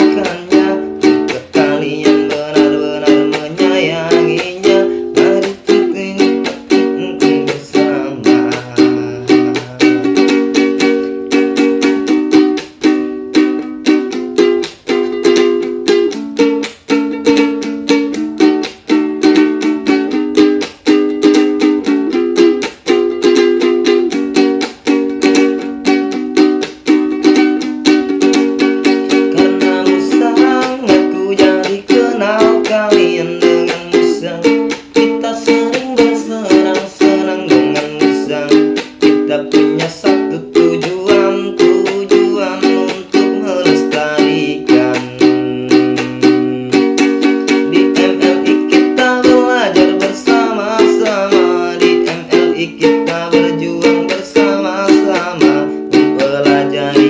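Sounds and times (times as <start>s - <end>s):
man singing: 0.0s - 12.4s, 28.1s - 57.0s
ukulele strumming: 0.0s - 57.0s.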